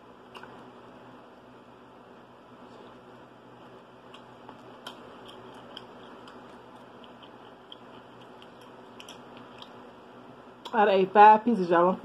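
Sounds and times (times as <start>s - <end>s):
chewing with small crunches: 0.2s - 0.7s, 3.7s - 10.0s.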